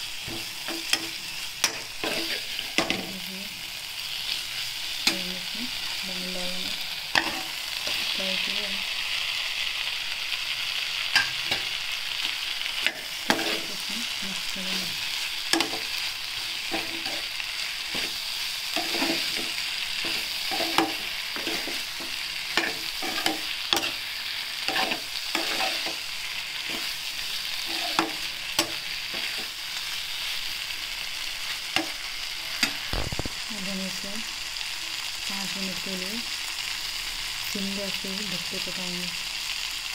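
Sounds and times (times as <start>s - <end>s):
food sizzling in a frying pan: 0.0s - 39.9s
steel spoon scraping a pan: 0.2s - 3.1s, 7.1s - 8.2s, 11.1s - 30.3s.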